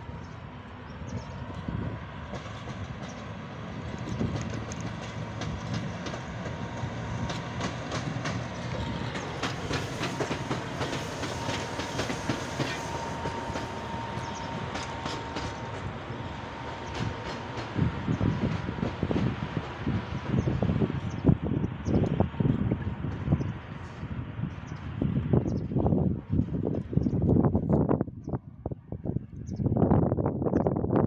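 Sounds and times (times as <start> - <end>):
train wheels clicking over rail joints: 2.2 - 20.5.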